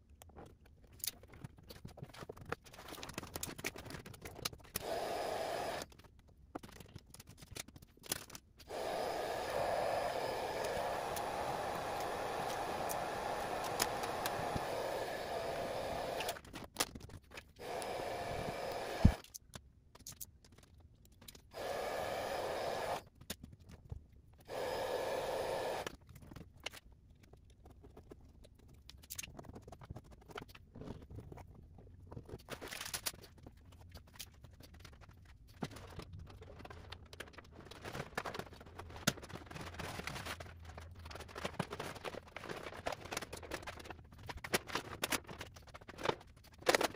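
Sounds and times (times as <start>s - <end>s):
vinyl film scraping and crinkling: 0.3s - 4.8s, 26.0s - 46.9s.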